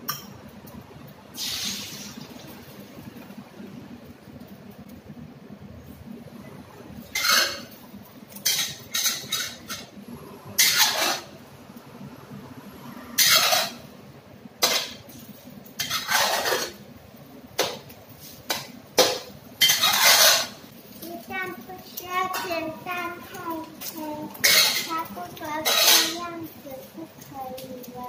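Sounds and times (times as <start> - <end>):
metal spatula scraping a wok: 7.1 - 7.8, 8.4 - 9.9, 10.6 - 11.3, 13.2 - 13.9, 14.6 - 15.0, 15.8 - 16.8, 18.2 - 20.7, 23.8 - 26.3.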